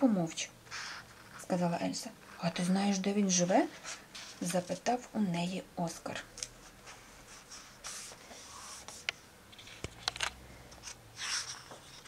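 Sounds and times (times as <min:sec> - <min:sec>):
paper rustling: 0:03.7 - 0:04.8, 0:06.4 - 0:12.0.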